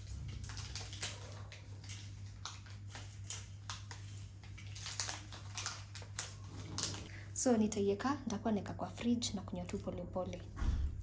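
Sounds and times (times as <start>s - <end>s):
packaging rustling and clicking: 0.0s - 7.1s.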